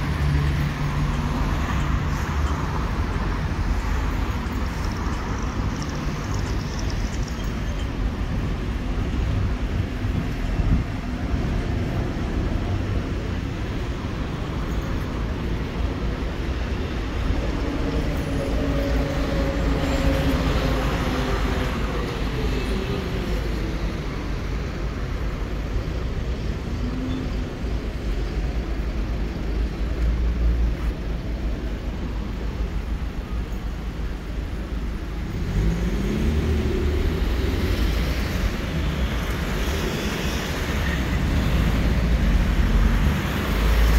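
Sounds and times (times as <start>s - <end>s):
rumble of traffic: 0.0s - 43.9s
vehicle revving and pulling away: 34.7s - 43.9s.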